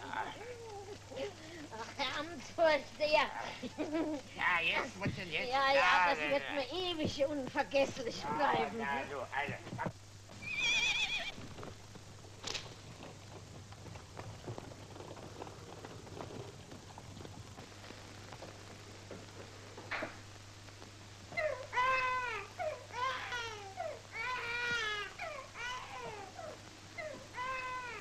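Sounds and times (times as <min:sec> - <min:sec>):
faint steady hum: 0:00.0 - 0:28.0
newborn baby crying: 0:21.3 - 0:28.0.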